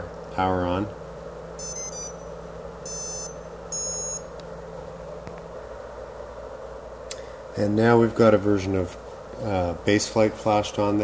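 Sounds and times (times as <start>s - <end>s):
steady low hum: 0.0s - 11.0s
motor power-up beeps: 1.6s - 4.3s.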